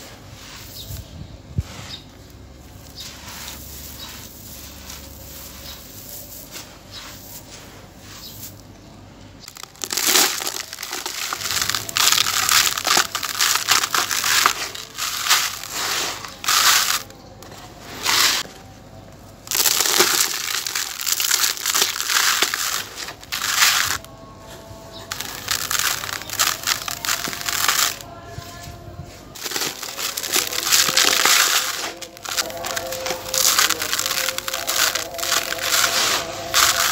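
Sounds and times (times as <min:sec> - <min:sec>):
gritty crunching and crumbling: 0:01.6 - 0:36.9
grit pouring into plastic basin: 0:02.8 - 0:08.6, 0:09.5 - 0:17.1, 0:19.5 - 0:24.0, 0:25.1 - 0:28.0, 0:29.4 - 0:36.9.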